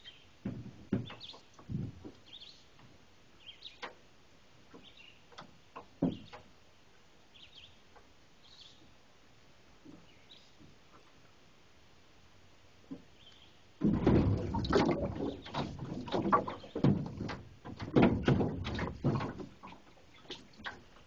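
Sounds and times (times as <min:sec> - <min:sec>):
small birds chirping: 0:00.0 - 0:00.4, 0:01.0 - 0:02.8, 0:03.4 - 0:03.9, 0:04.7 - 0:05.4, 0:07.3 - 0:09.0, 0:09.9 - 0:10.6, 0:13.1 - 0:13.7
dull knocks and thumps: 0:00.4 - 0:02.2, 0:04.7 - 0:06.5, 0:13.8 - 0:21.0.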